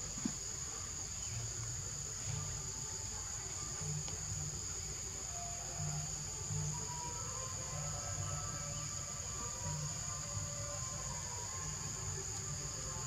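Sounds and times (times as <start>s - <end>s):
high-pitched insect chorus: 0.0s - 13.0s
low background murmur: 0.0s - 13.0s
faint tick: 4.0s - 4.2s.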